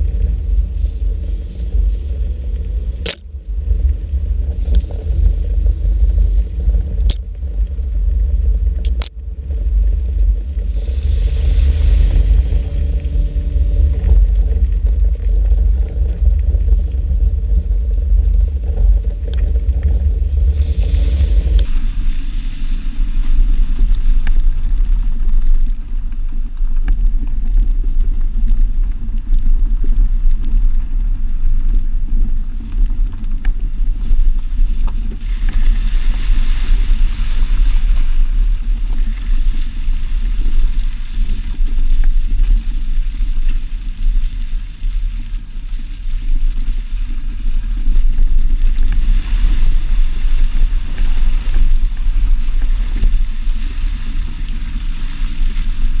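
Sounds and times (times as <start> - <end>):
engine and tyre noise: 0.0 - 25.6
wind buffeting microphone: 0.0 - 56.0
hiss: 10.3 - 13.9, 20.0 - 24.1.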